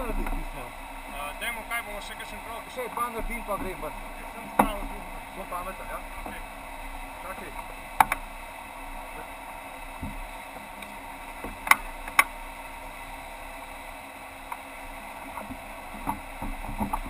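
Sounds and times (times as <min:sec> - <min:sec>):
sharp knocks: 0:04.5 - 0:05.0.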